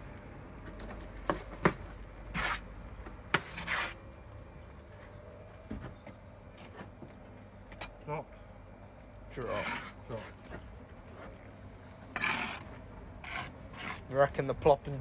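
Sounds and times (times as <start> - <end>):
trowel scraping mortar: 2.3 - 2.7, 3.4 - 4.0, 9.4 - 10.4, 12.1 - 14.4.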